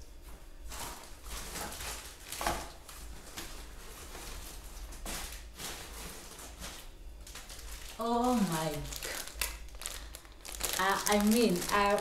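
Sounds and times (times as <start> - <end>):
plastic sack rustling: 0.7 - 12.0.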